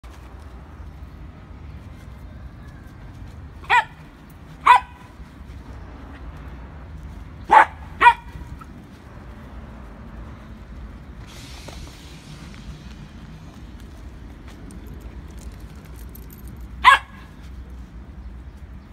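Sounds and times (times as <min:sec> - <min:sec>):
dog barking: 0:03.6 - 0:04.0, 0:04.6 - 0:05.1, 0:07.5 - 0:08.4, 0:16.8 - 0:17.3.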